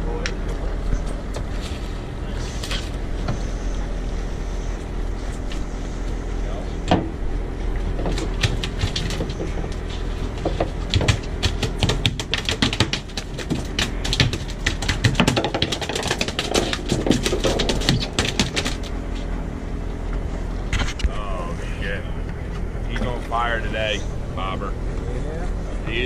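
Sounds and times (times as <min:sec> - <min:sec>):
steady low hum: 0:00.0 - 0:26.0
rapid irregular clicking and tapping: 0:07.8 - 0:19.3.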